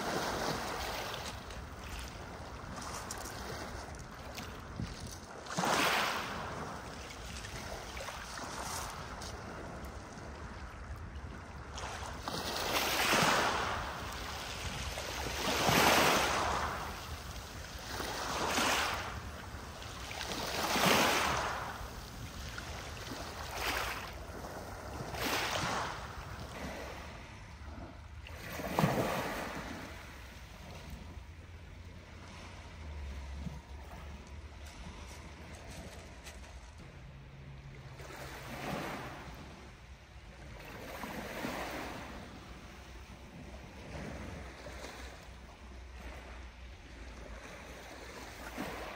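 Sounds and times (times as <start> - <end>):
wind gusts: 0.0 - 48.9.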